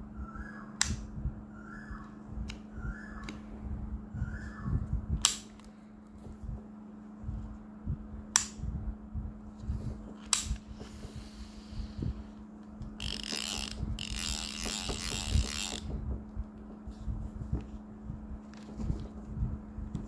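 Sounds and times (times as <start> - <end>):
fishing reel sharp clicks: 13.0 - 15.9
rasping mechanical ratcheting: 13.0 - 15.9.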